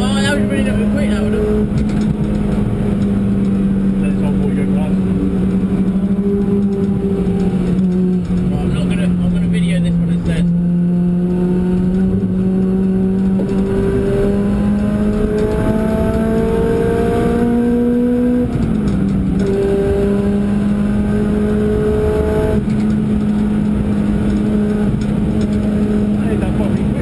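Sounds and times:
car engine accelerating: 0:00.0 - 0:27.0
road and wind noise: 0:00.0 - 0:27.0.

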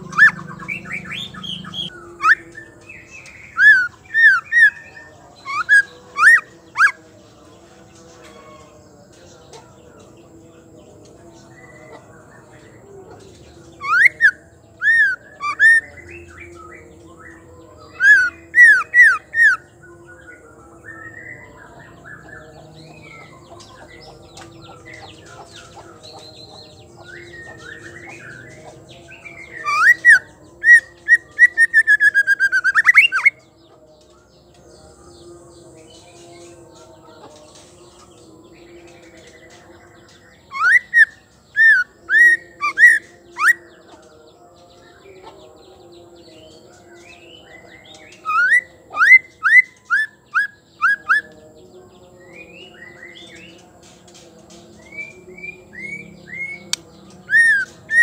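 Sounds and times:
bird singing whistled notes: 0:00.0 - 0:07.0, 0:13.8 - 0:25.4, 0:26.2 - 0:34.1, 0:40.0 - 0:43.7, 0:46.4 - 0:51.4, 0:54.8 - 0:58.0
soft bird twittering: 0:00.0 - 0:07.0, 0:10.9 - 0:44.1.

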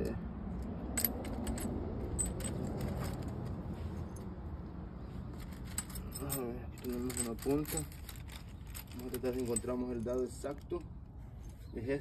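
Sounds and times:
metal drill bits clinking: 0:05.4 - 0:10.9.

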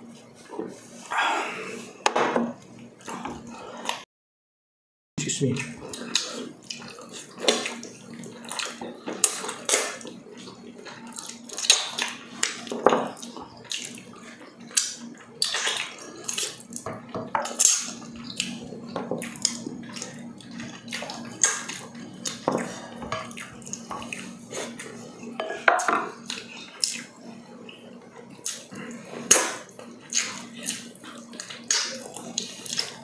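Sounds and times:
wet chewing and lip-smacking: 0:05.6 - 0:25.0, 0:26.2 - 0:33.0.

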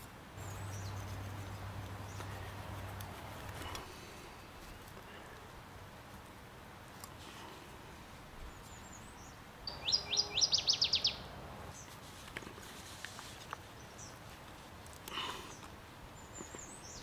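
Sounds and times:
songbird trill: 0:00.4 - 0:05.3, 0:08.4 - 0:11.9, 0:13.6 - 0:14.4, 0:15.1 - 0:17.0.

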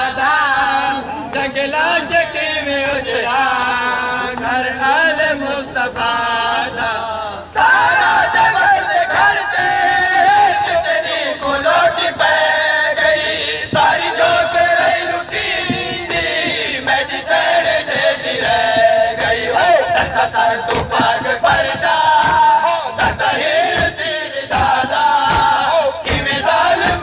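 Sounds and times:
crowd joining in chant: 0:00.0 - 0:27.0
men chanting a lament: 0:00.0 - 0:27.0.

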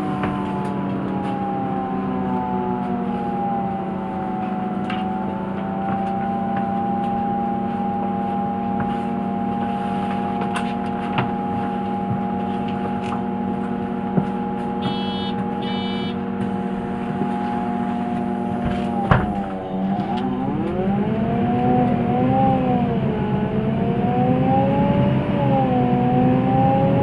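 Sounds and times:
bus engine idling: 0:00.0 - 0:05.6, 0:08.7 - 0:23.6
electronic beeping: 0:14.8 - 0:16.3.

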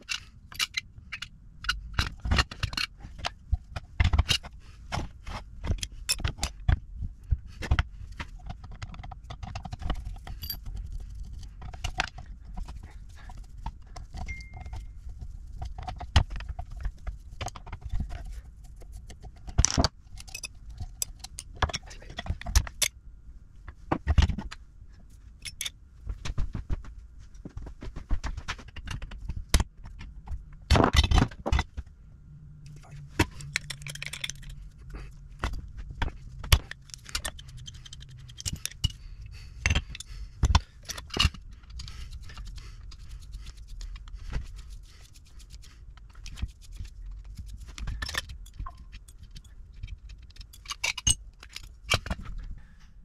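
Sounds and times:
metal parts clinking and knocking: 0:00.0 - 0:06.8, 0:08.5 - 0:13.4, 0:18.9 - 0:22.9, 0:25.4 - 0:25.7, 0:32.7 - 0:39.0, 0:47.4 - 0:52.4.

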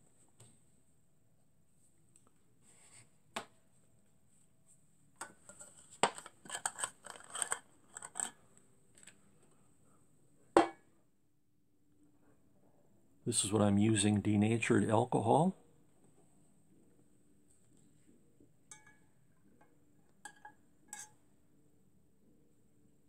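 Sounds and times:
light metallic clicks and scrapes: 0:05.2 - 0:09.2.

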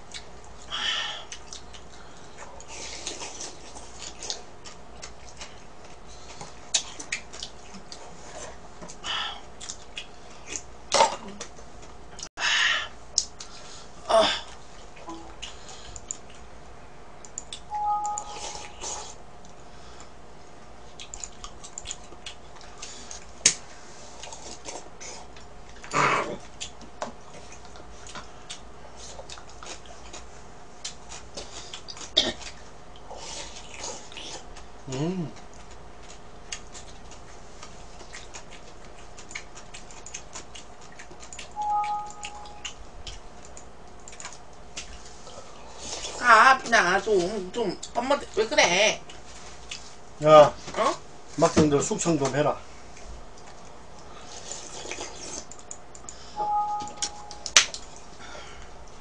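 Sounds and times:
two-pitch steady tone: 0:17.7 - 0:18.8, 0:41.6 - 0:42.7, 0:56.4 - 0:57.6.

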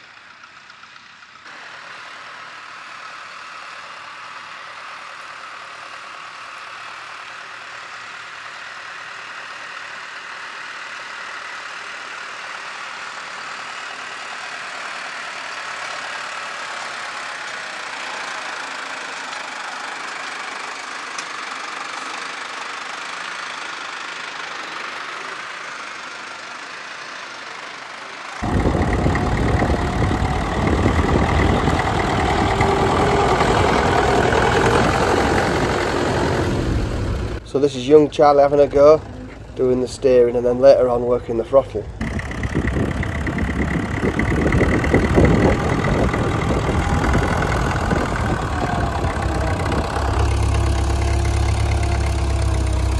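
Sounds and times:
tractor diesel engine working: 0:00.0 - 0:52.9
tractor engine running close: 0:00.0 - 0:52.9.

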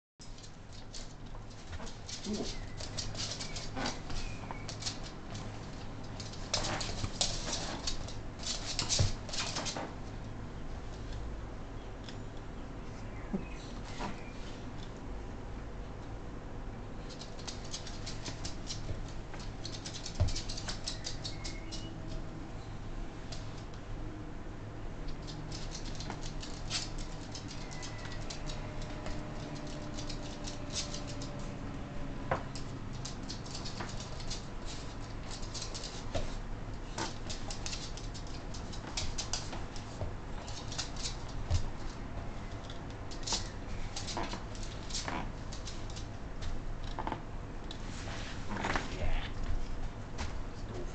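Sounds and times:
dog claws clicking on hard floor: 0:00.2 - 0:10.0, 0:17.0 - 0:22.2, 0:25.0 - 0:31.5, 0:32.3 - 0:47.2.

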